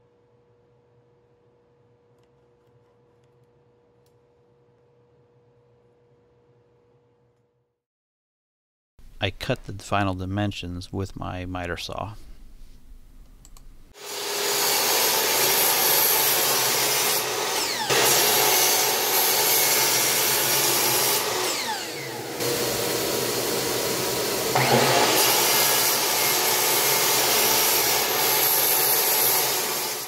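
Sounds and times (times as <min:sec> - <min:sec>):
miter saw cutting plastic: 0:14.0 - 0:30.0.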